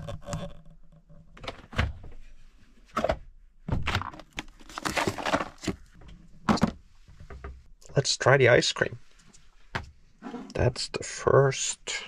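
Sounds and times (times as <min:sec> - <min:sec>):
packaging crinkling and tearing: 0:04.3 - 0:05.8.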